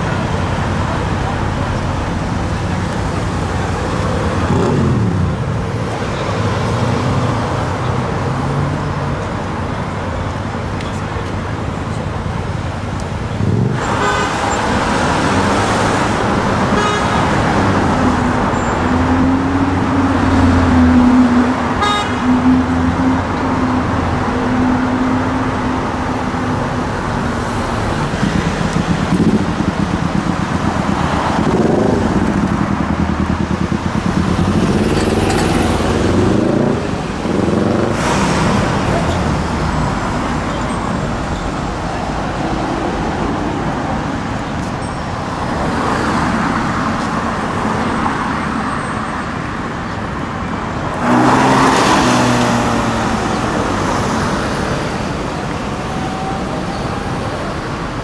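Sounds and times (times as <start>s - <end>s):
busy city traffic: 0.0s - 58.0s
sports car engines revving: 0.0s - 58.0s.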